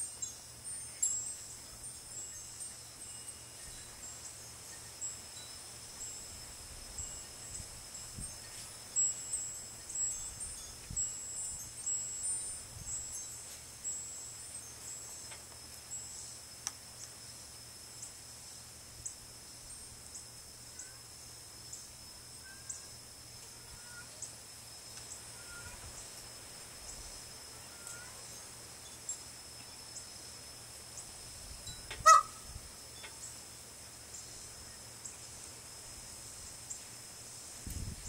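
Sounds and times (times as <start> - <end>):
high-pitched tinkling: 0.0 - 16.6
wind gusting over microphone: 37.6 - 38.0.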